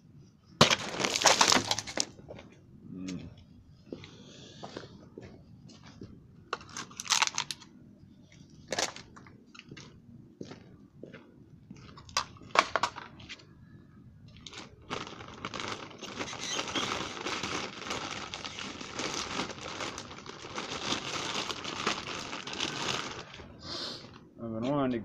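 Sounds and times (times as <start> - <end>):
plastic bottles crinkling: 0.6 - 2.2, 6.6 - 7.6, 14.3 - 24.3.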